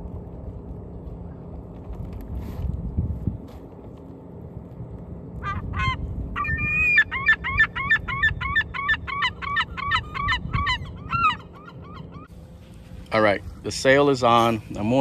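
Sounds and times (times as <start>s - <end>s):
large bird calling: 5.4s - 12.3s.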